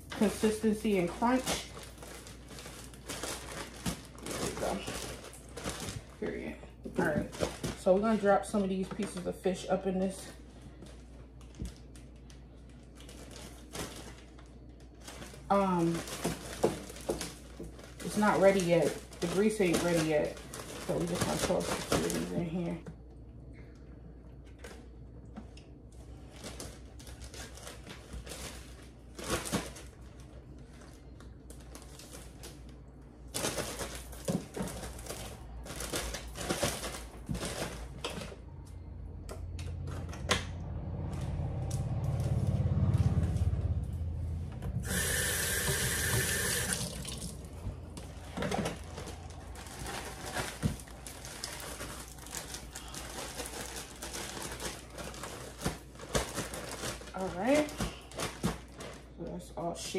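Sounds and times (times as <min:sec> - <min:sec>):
low rumble: 0:38.3 - 0:45.0
water from sink tap: 0:44.9 - 0:47.5.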